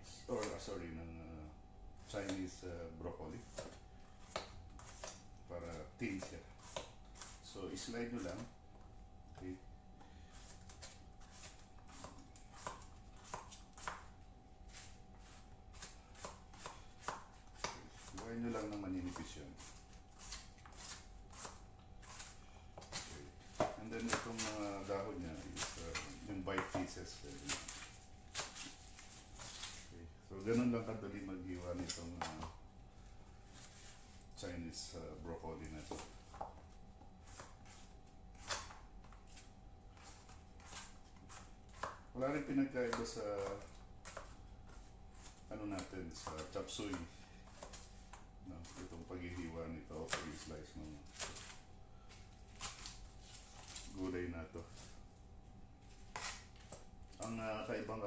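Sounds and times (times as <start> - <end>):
faint steady hum: 0.0 - 58.0
knife chopping on cutting board: 10.6 - 28.9.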